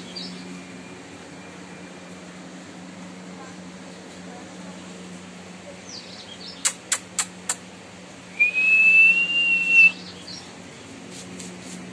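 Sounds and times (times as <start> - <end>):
steady high whistle: 8.4 - 10.0.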